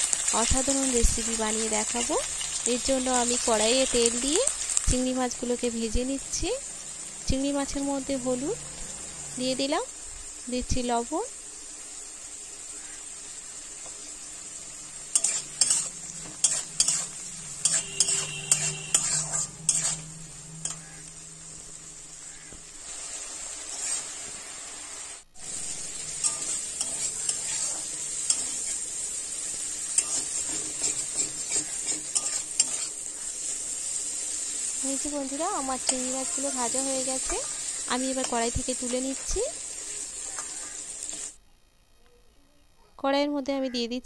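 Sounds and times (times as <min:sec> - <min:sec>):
prawns sizzling in hot oil: 0:00.0 - 0:41.4
metal spatula scraping pan: 0:15.1 - 0:21.2, 0:22.3 - 0:24.2, 0:25.5 - 0:33.9.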